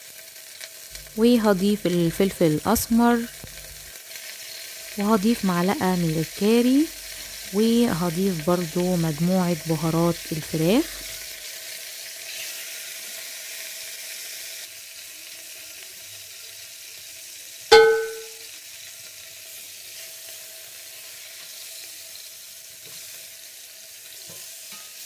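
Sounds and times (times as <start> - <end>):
chicken sizzling in oil: 0.0 - 25.0
spatula turning food: 0.6 - 11.3
loud metallic clang: 17.7 - 18.4.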